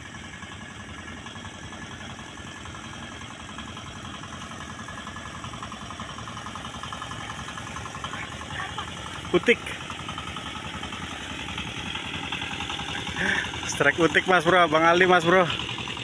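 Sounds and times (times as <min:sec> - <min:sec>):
boat engine chugging: 0:00.0 - 0:16.0.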